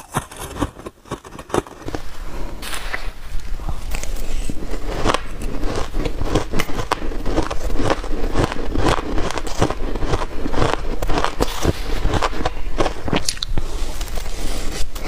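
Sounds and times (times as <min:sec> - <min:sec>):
shaved ice crunching when chewed: 0:00.0 - 0:02.0, 0:03.9 - 0:13.5.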